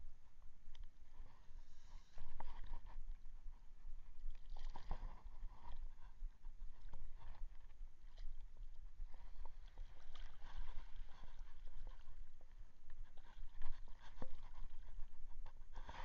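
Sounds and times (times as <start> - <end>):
water lapping against boat: 4.2 - 16.0.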